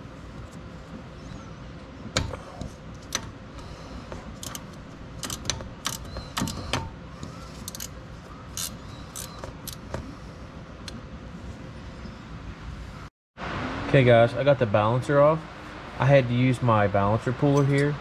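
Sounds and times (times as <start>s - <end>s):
metal tool clinking on bolts: 4.4s - 6.9s, 17.5s - 18.0s.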